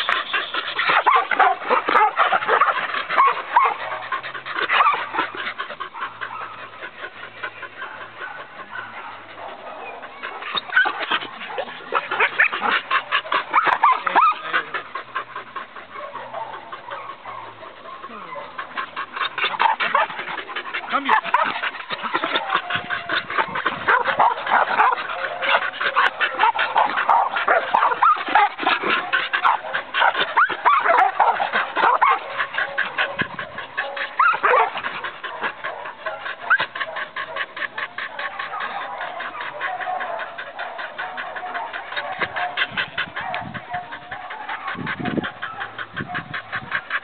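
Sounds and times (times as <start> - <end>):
dog barking: 0.9 - 4.0, 16.0 - 18.6, 23.8 - 33.2, 33.8 - 37.5, 38.1 - 46.4.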